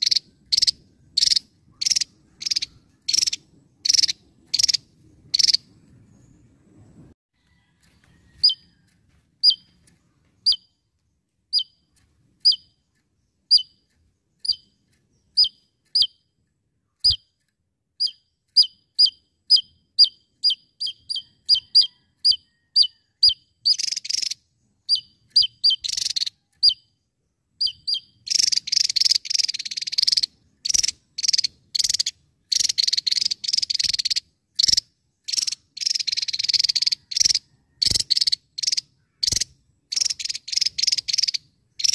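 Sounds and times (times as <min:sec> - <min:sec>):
bird rapid rattling bursts: 0:00.0 - 0:05.8, 0:23.6 - 0:26.8, 0:27.7 - 0:41.9.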